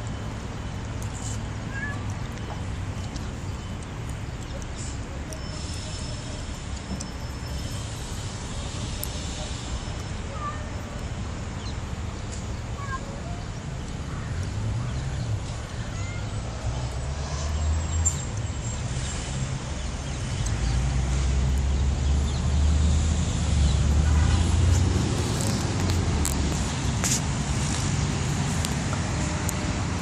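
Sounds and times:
distant road traffic rumble: 0:00.0 - 0:30.0.

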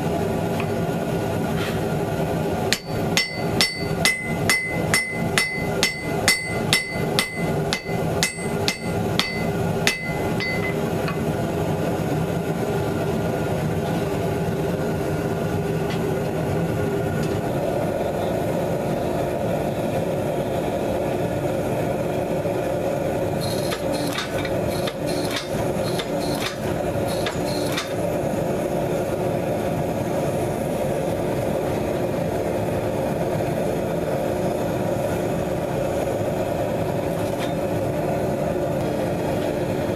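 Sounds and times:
hammer blows on an anvil: 0:02.7 - 0:10.8
hydraulic motor hum: 0:23.4 - 0:28.2.

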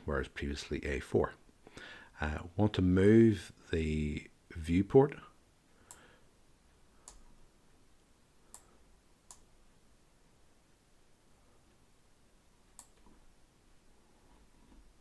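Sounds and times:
computer mouse clicks: 0:07.0 - 0:07.2, 0:08.5 - 0:09.5, 0:12.7 - 0:13.2.

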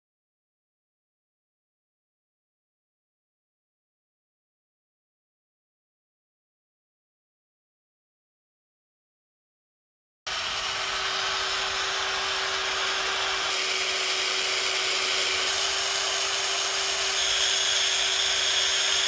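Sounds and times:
power drill motor whine: 0:10.3 - 0:19.0.

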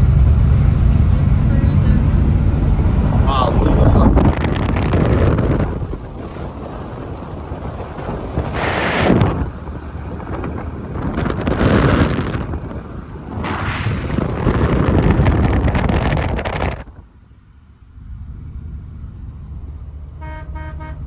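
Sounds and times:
car road noise: 0:00.0 - 0:21.0
wind buffeting microphone: 0:01.0 - 0:17.1.

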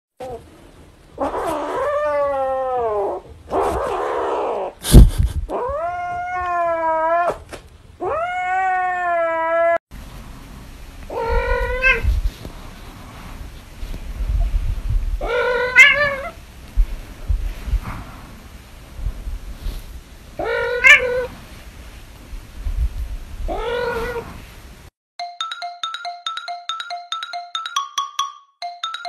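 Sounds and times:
cat yowling: 0:01.2 - 0:04.8, 0:08.0 - 0:09.8, 0:11.1 - 0:12.0, 0:15.2 - 0:16.4, 0:20.4 - 0:21.3, 0:23.5 - 0:24.3
kitten yowling meows: 0:05.5 - 0:07.4, 0:08.0 - 0:09.8, 0:11.1 - 0:12.1, 0:15.2 - 0:16.4, 0:20.4 - 0:21.3, 0:23.5 - 0:24.3.

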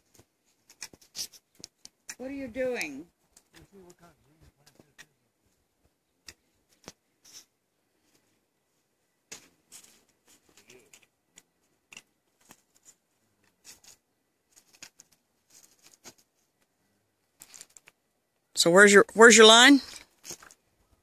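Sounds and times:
faint irregular clicks: 0:00.0 - 0:04.0, 0:05.8 - 0:08.3, 0:09.3 - 0:18.5
rustles: 0:00.0 - 0:18.5, 0:19.8 - 0:21.0.

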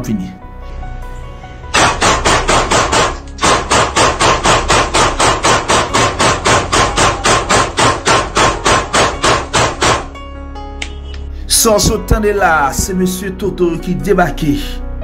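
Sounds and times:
rapid sharp knocks: 0:01.8 - 0:10.2.

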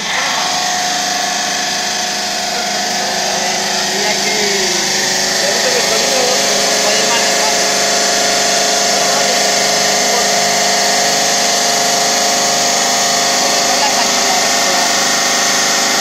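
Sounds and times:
saw blade cutting stone: 0:00.0 - 0:16.0.

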